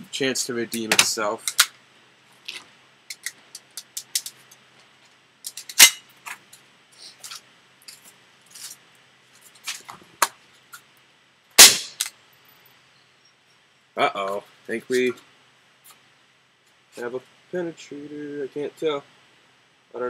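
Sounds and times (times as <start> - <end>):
pistol handling clicks: 1.4 - 1.8
air pistol cracks: 11.6 - 12.2.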